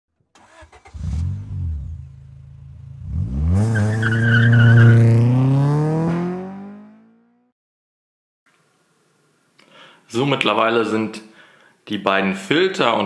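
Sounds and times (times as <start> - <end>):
car engine revving and accelerating: 0.5 - 7.5
tyre squeal: 3.7 - 5.0.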